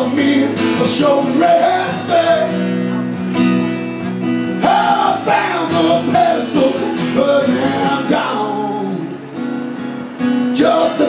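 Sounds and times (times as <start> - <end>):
man singing: 0.0 - 3.0, 4.5 - 9.2, 10.4 - 11.0
strummed acoustic guitar: 0.0 - 11.0.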